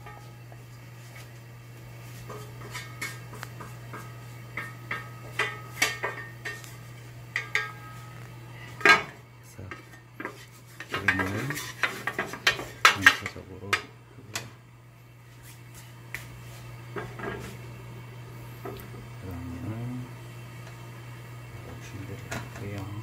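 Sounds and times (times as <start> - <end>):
steady low hum: 0.0 - 23.0
metal pan and spatula clinking: 7.4 - 8.0
scraping and clattering: 9.8 - 13.4.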